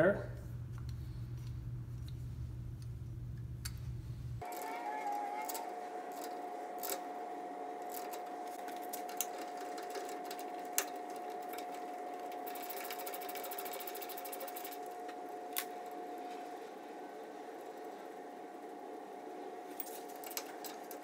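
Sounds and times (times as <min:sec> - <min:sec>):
steady hum: 0:00.0 - 0:21.0
rapid fine ticking: 0:09.0 - 0:15.1.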